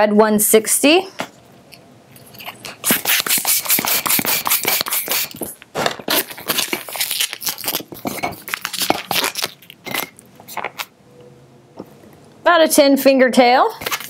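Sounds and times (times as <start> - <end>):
balloon latex squeaking: 2.2 - 10.9
hand pump inflating balloon: 2.4 - 5.5.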